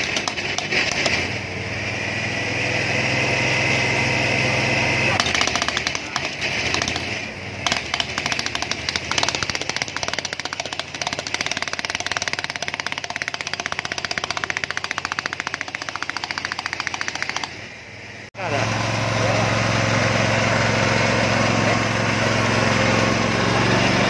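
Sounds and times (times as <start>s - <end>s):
hydraulic breaker hammering on asphalt: 0.0s - 1.4s, 5.1s - 17.7s.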